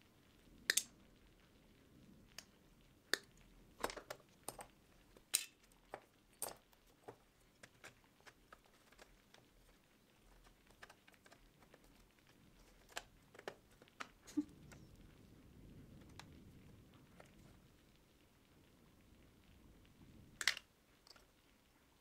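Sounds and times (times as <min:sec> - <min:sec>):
light clicks and taps: 0:02.3 - 0:15.0.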